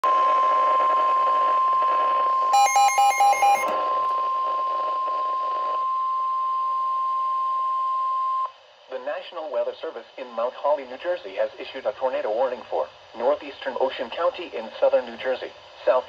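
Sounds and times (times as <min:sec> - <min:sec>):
steady high alarm tone: 0:00.1 - 0:08.5
electronic beeps: 0:02.0 - 0:04.1.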